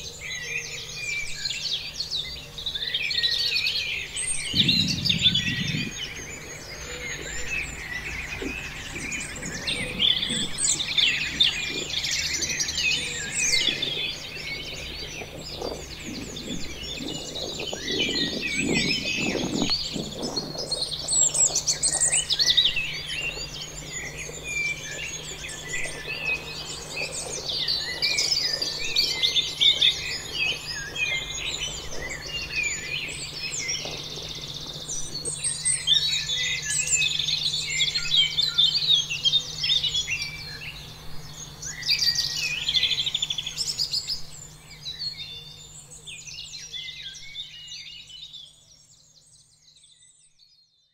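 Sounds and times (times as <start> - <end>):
faint low hum: 0.0 - 50.2
chorus of birds chirping: 0.0 - 50.9.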